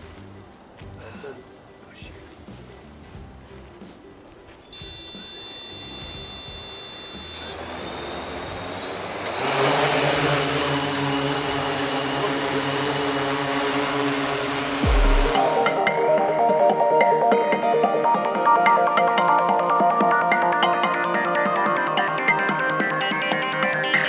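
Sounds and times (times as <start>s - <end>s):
drone motors whining: 4.8s - 15.9s.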